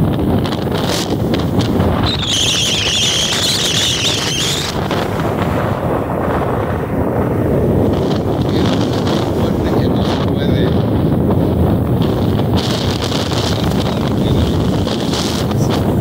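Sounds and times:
breaking surf: 0:00.0 - 0:16.0
wind buffeting microphone: 0:00.0 - 0:16.0
wavering high whistle: 0:02.0 - 0:04.8.

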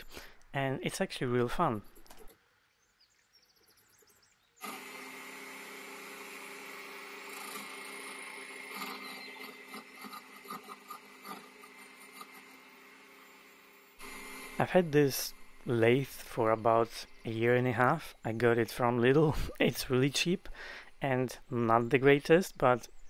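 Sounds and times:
irregular ticks and scrapes: 0:00.0 - 0:02.4, 0:06.8 - 0:22.9
wood lathe motor humming: 0:04.6 - 0:18.3.

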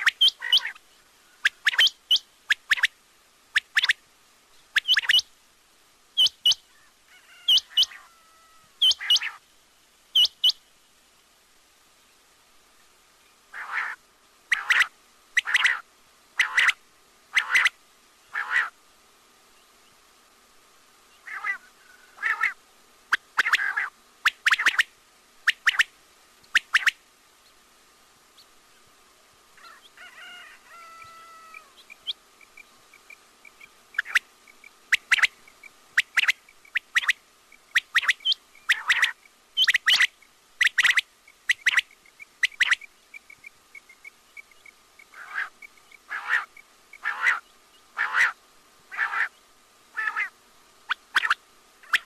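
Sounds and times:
quail calling: 0:00.0 - 0:02.9, 0:04.7 - 0:05.3, 0:06.2 - 0:09.4, 0:10.2 - 0:10.6, 0:13.5 - 0:18.8, 0:21.2 - 0:25.9, 0:26.5 - 0:27.0, 0:29.6 - 0:32.6, 0:33.5 - 0:52.0
faint steady tone: 0:00.0 - 0:52.0
faint rapid ticking: 0:31.8 - 0:47.0.

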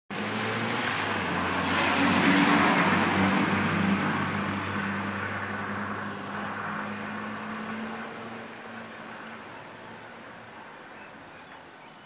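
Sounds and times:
vehicle passing by: 0:00.1 - 0:10.8.

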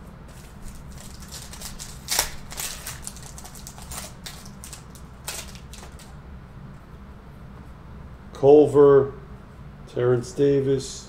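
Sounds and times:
cards being handled: 0:00.3 - 0:06.2
foil wrapper crinkling: 0:00.3 - 0:06.2.

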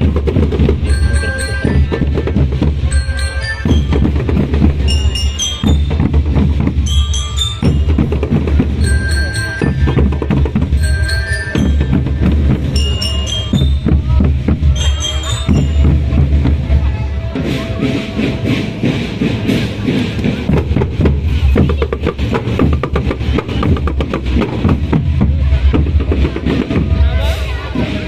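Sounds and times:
marching drums beating: 0:00.0 - 0:28.0
bell-lyre notes ringing: 0:00.8 - 0:19.3.

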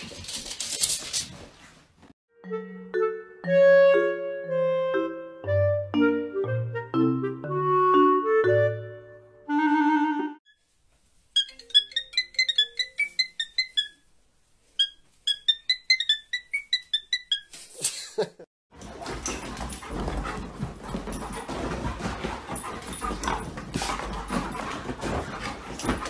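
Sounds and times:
musical passage: 0:02.3 - 0:10.4.

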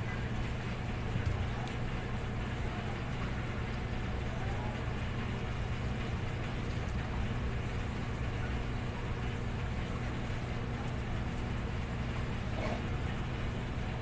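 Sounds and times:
constant background rush: 0:00.0 - 0:14.0
steady low hum: 0:00.0 - 0:14.0.

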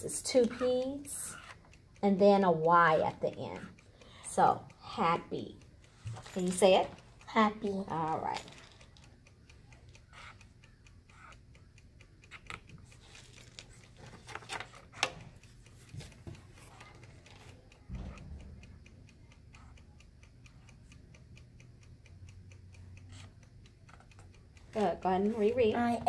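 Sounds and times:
quick ticking: 0:00.0 - 0:26.0
marker scratching on paper: 0:00.4 - 0:01.6, 0:10.1 - 0:10.4, 0:11.1 - 0:11.3, 0:23.1 - 0:23.3.

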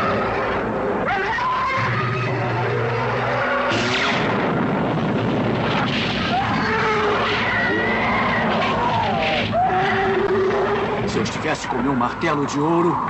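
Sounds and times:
rumble of crashing rock: 0:01.8 - 0:11.4
cartoon explosion blast: 0:03.3 - 0:09.3.

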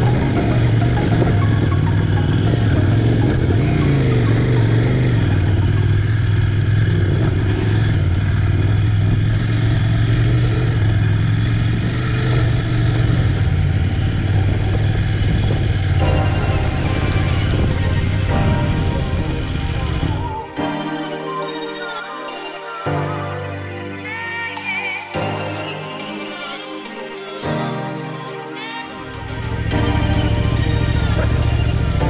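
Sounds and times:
vehicle engine running: 0:00.0 - 0:21.1, 0:29.1 - 0:32.0.

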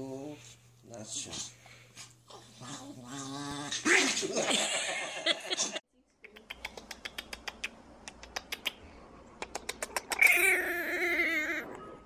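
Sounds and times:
puppy high-pitched growl: 0:02.3 - 0:04.5, 0:09.9 - 0:12.0
puppy teeth snapping clicks: 0:06.3 - 0:08.8, 0:09.4 - 0:10.4.

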